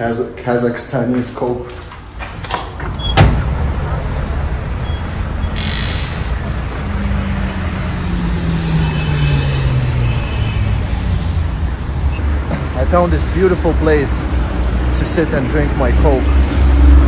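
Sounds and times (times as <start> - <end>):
road traffic rumble: 0.0 - 17.0
passing vehicle engine hum: 3.5 - 14.9.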